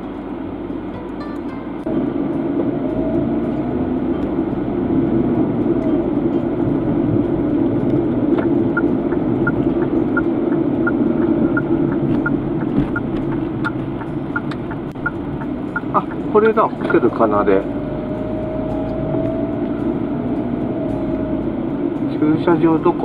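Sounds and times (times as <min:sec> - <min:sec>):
car engine and tyre rumble: 0:00.0 - 0:23.0
turn signal relay ticking: 0:00.1 - 0:23.0.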